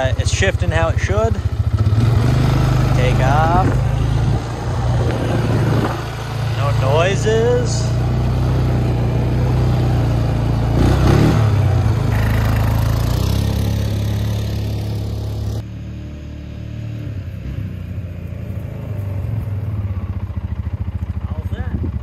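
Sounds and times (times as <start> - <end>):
atv engine running: 0.0 - 22.0.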